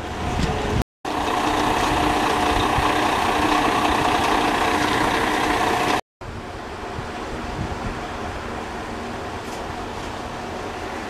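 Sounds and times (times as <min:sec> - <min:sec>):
diesel locomotive engine idling: 0:01.1 - 0:06.0.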